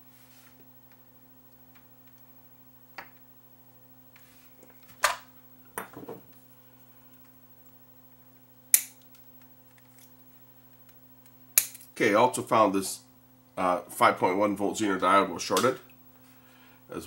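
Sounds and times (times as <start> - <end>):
faint low hum: 0.0 - 17.0
side cutters snipping wire: 8.7 - 9.0.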